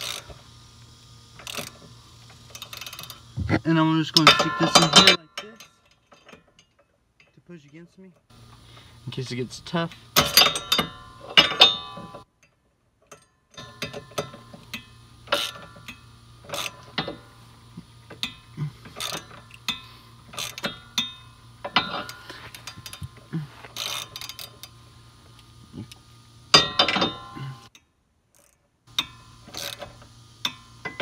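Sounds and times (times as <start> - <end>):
ratchet wrench clicking: 0.0 - 0.5, 1.3 - 3.4, 9.8 - 17.4, 18.0 - 31.0.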